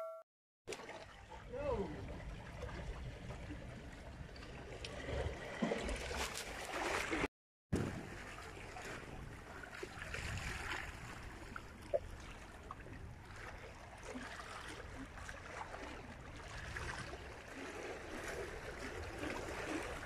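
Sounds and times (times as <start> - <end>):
sea water washing among boulders: 13.3 - 20.0.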